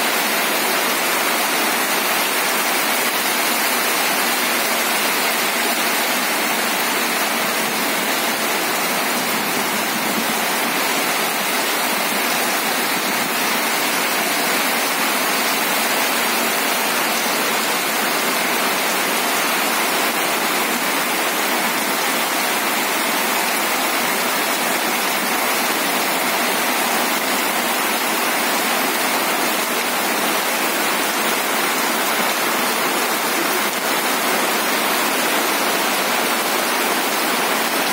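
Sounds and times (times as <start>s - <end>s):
heavy rain on wet ground: 0.0s - 37.9s.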